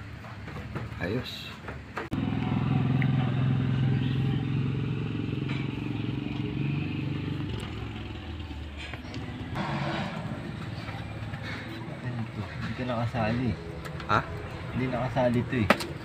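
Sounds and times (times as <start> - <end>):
small engine humming: 2.2 - 11.7.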